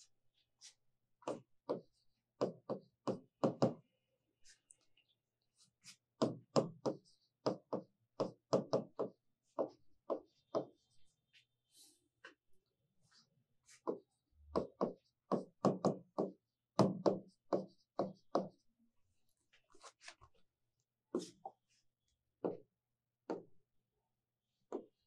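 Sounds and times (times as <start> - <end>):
chalk tapping on blackboard: 5.8 - 10.8, 13.7 - 18.6.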